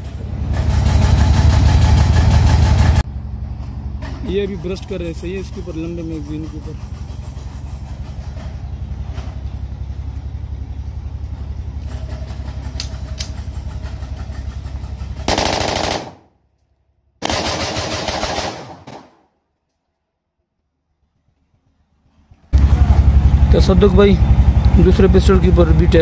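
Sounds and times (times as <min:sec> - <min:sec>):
low engine-like drone: 0:00.0 - 0:16.7, 0:20.4 - 0:26.0
automatic pistol fire bursts: 0:15.3 - 0:16.3, 0:17.2 - 0:19.3.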